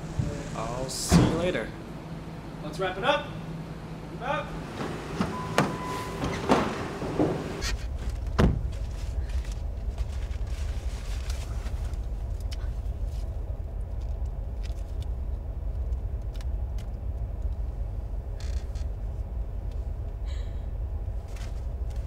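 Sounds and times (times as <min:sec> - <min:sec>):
car engine rumble inside cabin: 0:00.0 - 0:22.0
short rustle: 0:07.4 - 0:12.4.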